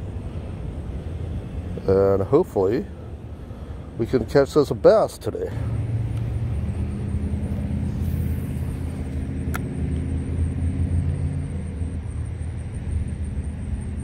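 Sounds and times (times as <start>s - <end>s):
vehicle engine rumble: 0.0s - 14.0s
sharp click: 9.5s - 9.7s.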